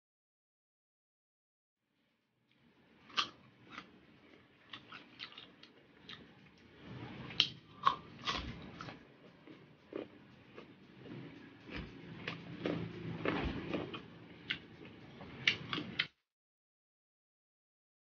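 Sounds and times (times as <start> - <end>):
wet chewing: 3.1 - 6.3, 7.3 - 16.1.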